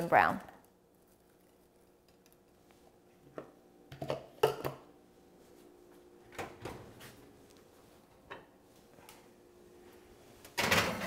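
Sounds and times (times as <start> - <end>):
faint room hum: 0.0 - 11.0.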